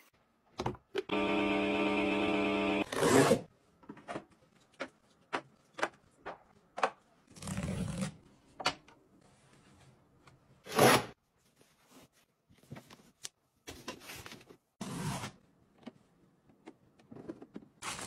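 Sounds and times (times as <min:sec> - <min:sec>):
washing machine motor hum: 0:01.1 - 0:02.8.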